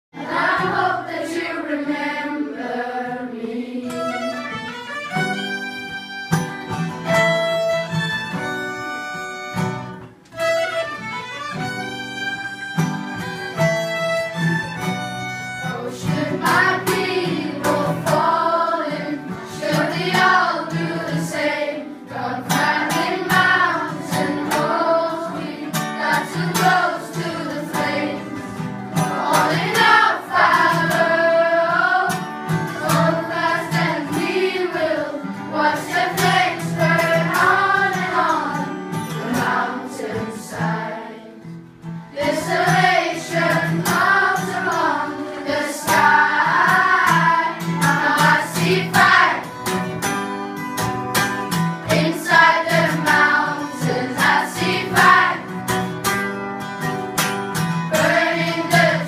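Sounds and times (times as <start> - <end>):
children's choir singing: 0.1 - 5.4, 12.8 - 50.0, 51.5 - 56.1, 57.6 - 59.0
acoustic guitar strumming: 0.2 - 59.0
violins playing: 3.6 - 16.4.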